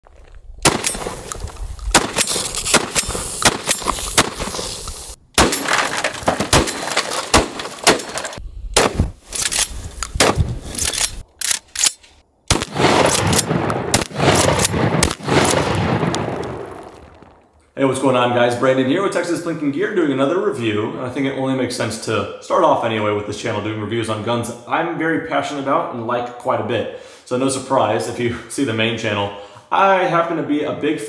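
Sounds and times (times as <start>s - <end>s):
shotgun firing with echo: 0.6s - 1.2s, 1.9s - 4.7s, 5.4s - 5.8s, 12.5s - 16.9s.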